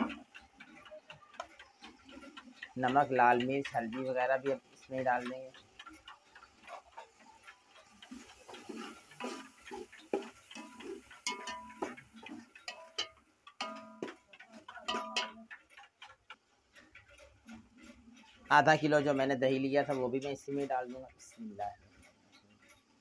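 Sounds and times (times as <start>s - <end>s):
faint sizzle: 7.1s - 15.6s
metal spoon clinking in a pot: 8.6s - 15.5s.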